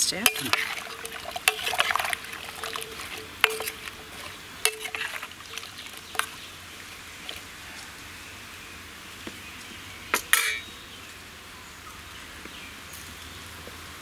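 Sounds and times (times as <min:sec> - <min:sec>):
spoon clinking against pot: 0:00.1 - 0:06.4
soft wet scrapes: 0:00.3 - 0:08.0.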